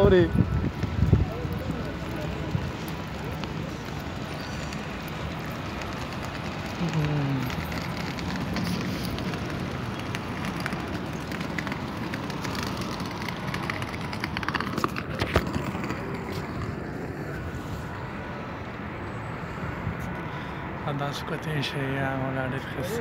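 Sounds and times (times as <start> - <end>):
wind on microphone: 0.0 - 3.2
distant traffic hum: 0.0 - 23.0.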